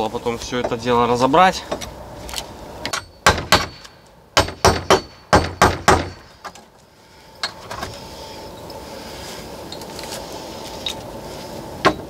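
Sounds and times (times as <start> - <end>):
sharp knocks on wood: 2.9 - 6.6.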